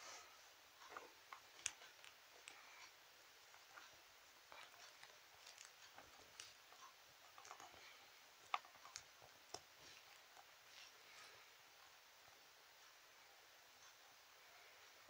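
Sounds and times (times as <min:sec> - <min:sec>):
toys clicking and rustling: 0:03.5 - 0:10.9.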